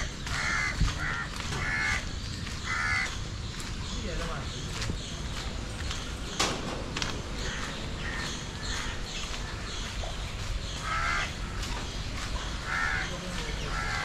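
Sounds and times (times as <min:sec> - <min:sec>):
crows cawing: 0:00.0 - 0:03.3, 0:07.4 - 0:09.9, 0:10.6 - 0:14.0.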